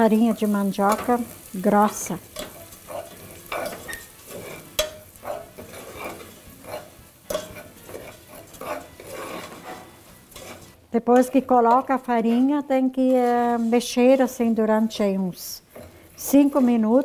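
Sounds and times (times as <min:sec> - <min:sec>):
light sizzle: 0:00.0 - 0:17.0
metal spoon scraping pot: 0:02.3 - 0:15.0, 0:15.6 - 0:17.0
spoon clinking on pot: 0:04.7 - 0:05.6, 0:06.7 - 0:09.7.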